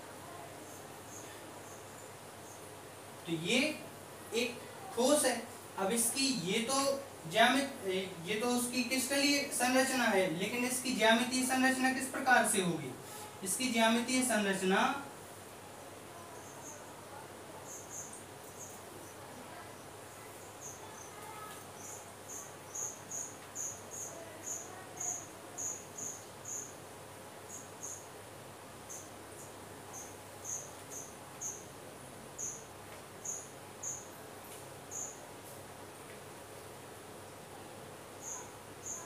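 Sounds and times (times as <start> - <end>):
insect chirping: 0.2 - 35.3, 38.1 - 39.0.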